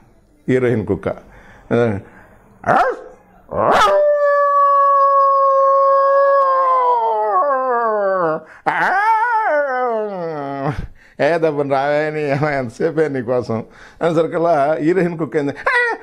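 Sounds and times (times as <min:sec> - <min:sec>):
man imitating dog howl: 0:02.7 - 0:10.7.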